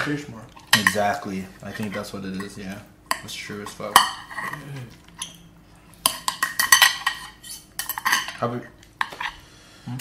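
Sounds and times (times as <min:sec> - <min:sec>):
cutlery scraping on ceramic plate: 0:04.0 - 0:05.4, 0:06.0 - 0:08.4, 0:09.0 - 0:09.4.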